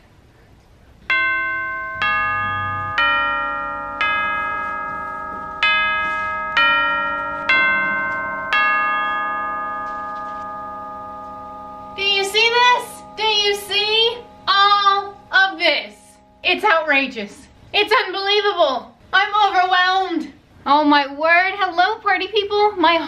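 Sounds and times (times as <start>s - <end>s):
bell-like chime melody: 1.1s - 17.6s.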